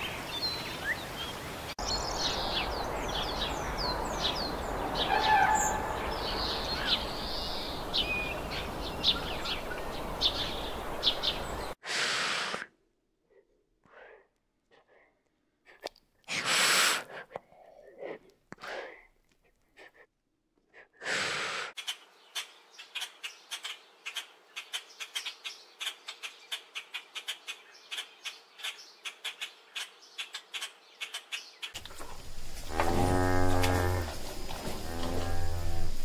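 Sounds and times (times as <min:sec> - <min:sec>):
lizard hissing: 0:11.8 - 0:12.7, 0:16.3 - 0:17.3, 0:21.0 - 0:21.8
cow mooing: 0:32.7 - 0:36.0.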